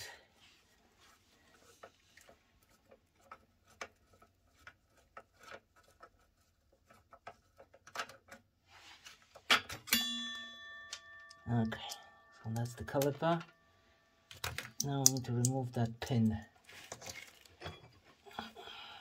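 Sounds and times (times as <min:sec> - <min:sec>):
sharp metal knock ringing: 0:09.9 - 0:11.4
metal tool clicking on screws: 0:14.3 - 0:16.0.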